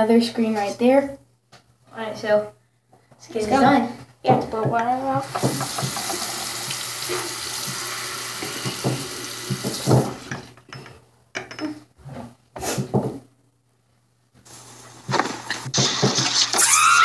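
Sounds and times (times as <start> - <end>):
water tap running: 5.2 - 10.5.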